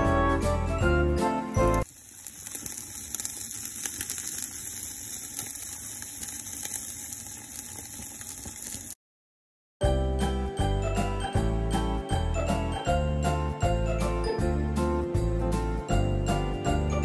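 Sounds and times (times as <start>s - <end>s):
background music: 0.0s - 1.8s, 9.8s - 17.0s
meat sizzling on a grill: 1.5s - 9.0s.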